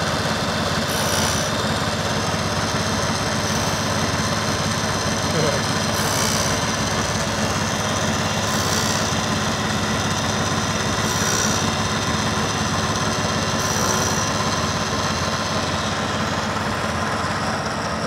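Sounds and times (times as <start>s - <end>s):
milling machine cutting metal: 0.6s - 16.6s
high-pitched metal scrape: 0.9s - 1.5s, 6.0s - 6.6s, 11.0s - 11.7s, 13.6s - 14.3s.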